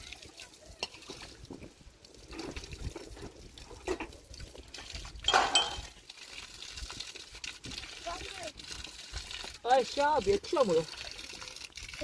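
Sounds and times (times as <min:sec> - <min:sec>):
water splashing and dripping: 0:00.0 - 0:12.0
light clinks: 0:05.3 - 0:05.9.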